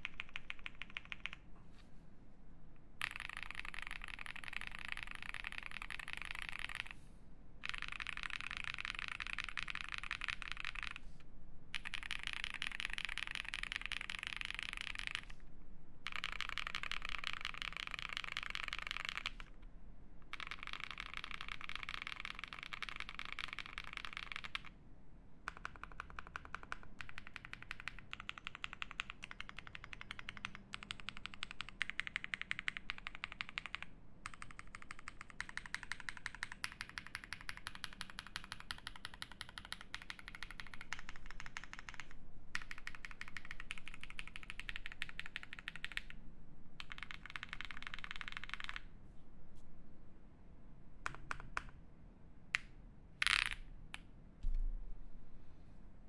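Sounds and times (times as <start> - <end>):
fast typing on mechanical keyboard: 0.0 - 1.4, 3.0 - 7.0, 7.6 - 11.0, 11.7 - 15.4, 16.0 - 19.5, 20.2 - 24.7, 25.5 - 46.2, 46.8 - 48.9.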